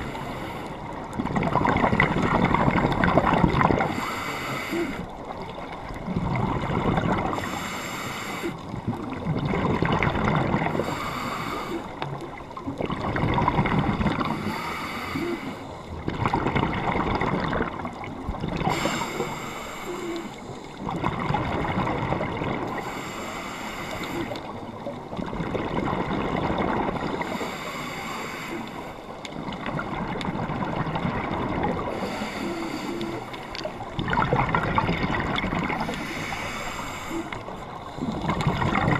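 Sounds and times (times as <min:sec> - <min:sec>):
regulator hiss on inhale: 0:00.0 - 0:00.9, 0:03.8 - 0:05.1, 0:07.3 - 0:08.6, 0:10.7 - 0:12.1, 0:14.2 - 0:15.9, 0:18.7 - 0:20.8, 0:22.8 - 0:24.5, 0:27.1 - 0:29.2, 0:31.9 - 0:33.7, 0:35.7 - 0:38.2
gurgle of exhaled bubbles: 0:00.0 - 0:07.8, 0:08.6 - 0:23.0, 0:24.1 - 0:28.0, 0:29.3 - 0:38.9.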